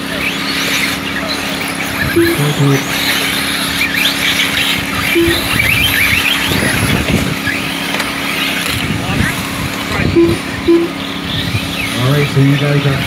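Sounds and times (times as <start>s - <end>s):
electric rc car motors whining: 0.0s - 10.1s
steady low hum: 1.8s - 7.6s, 10.0s - 12.4s
short beep: 2.2s - 2.8s, 5.2s - 5.8s, 10.2s - 11.0s.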